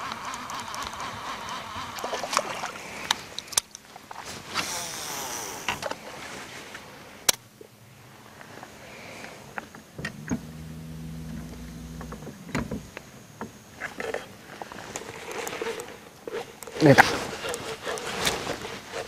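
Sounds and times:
lure splashing and gurgling: 0.0s - 4.2s
low steady hum: 0.0s - 19.0s.

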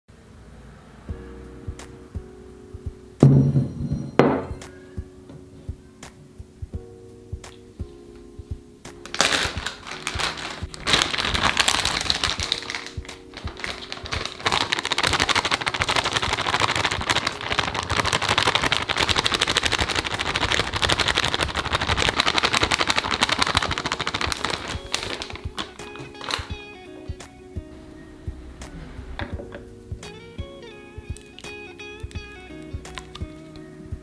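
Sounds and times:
soft background music: 0.2s - 34.0s
flour pouring: 9.0s - 26.6s
plastic bag crinkling: 9.0s - 26.6s.

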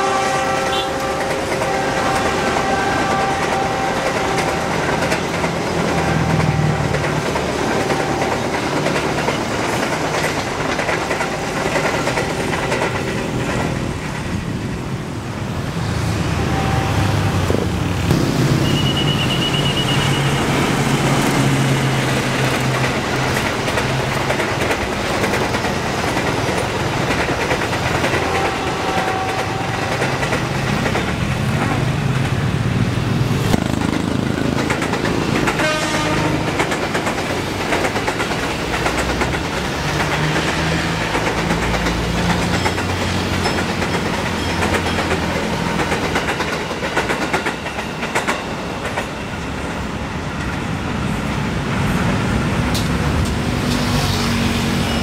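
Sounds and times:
diesel locomotive: 0.0s - 55.0s
train wheels rumbling on rails: 0.0s - 55.0s.

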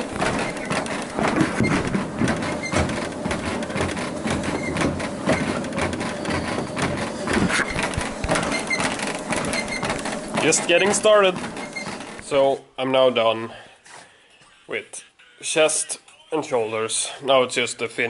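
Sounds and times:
feet thudding on treadmill: 0.0s - 12.4s
treadmill belt and motor running: 0.0s - 12.5s.

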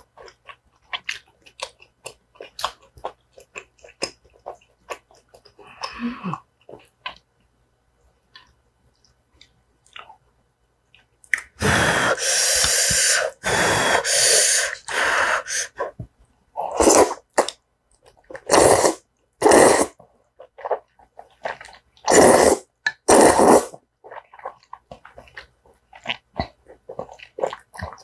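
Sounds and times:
noodles slurping: 18.3s - 28.0s.

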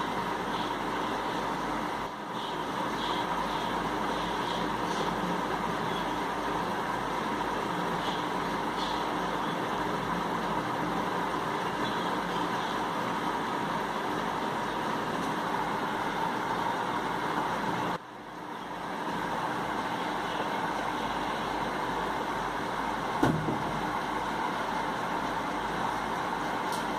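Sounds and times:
background hum and hiss: 0.0s - 26.9s
sharp knock: 23.2s - 23.7s.

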